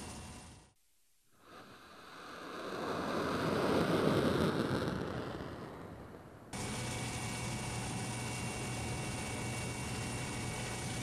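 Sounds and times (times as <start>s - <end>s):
rocket motor rushing rumble: 2.2s - 11.0s.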